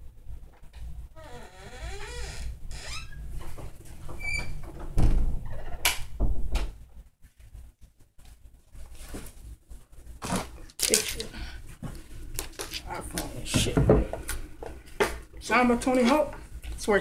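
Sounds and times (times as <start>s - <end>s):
door hinges squeaking: 1.2s - 3.3s, 4.1s - 6.0s.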